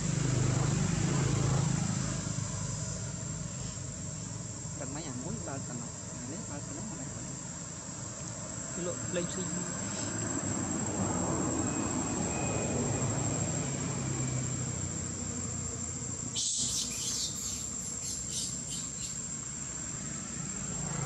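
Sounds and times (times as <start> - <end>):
insects droning: 0.0 - 21.0
sharp high-pitched rasps: 16.3 - 19.2.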